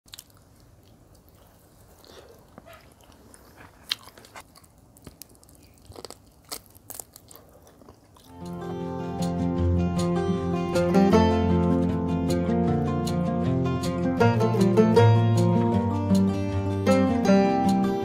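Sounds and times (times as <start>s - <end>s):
person chewing food: 0.1s - 8.6s
music: 8.3s - 18.0s.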